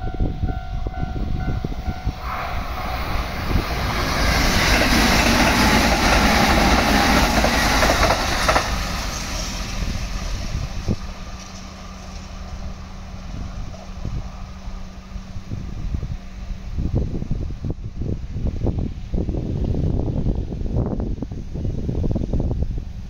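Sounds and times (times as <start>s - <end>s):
electric train passing at speed: 0.0s - 23.0s
wind rumble on microphone: 0.0s - 23.0s.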